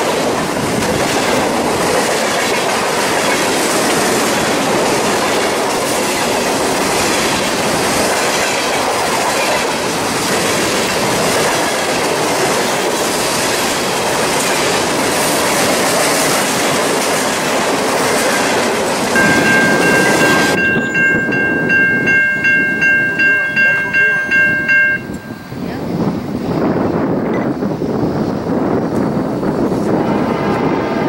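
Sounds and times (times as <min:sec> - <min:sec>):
wheels clickety-clack: 0:00.0 - 0:25.3
freight train rolling past: 0:00.0 - 0:31.0
grade-crossing bell ringing: 0:19.1 - 0:25.9.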